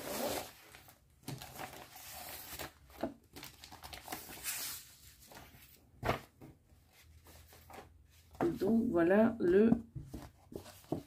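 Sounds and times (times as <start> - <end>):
plastic wrapper crinkling: 1.3 - 4.7.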